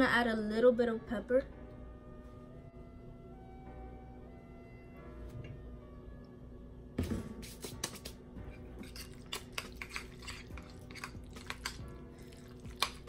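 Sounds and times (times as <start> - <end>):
fork clinking and scraping bowl: 7.6 - 13.0.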